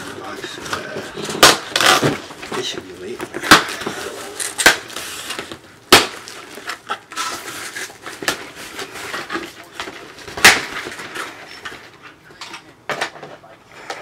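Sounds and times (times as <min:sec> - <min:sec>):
knife cutting tape and cardboard: 0:01.4 - 0:02.2.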